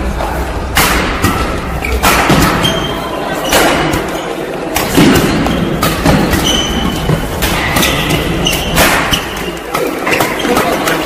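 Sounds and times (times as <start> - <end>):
racket hitting shuttlecock: 0.7 - 11.0
shoes squeaking on court: 2.6 - 11.0.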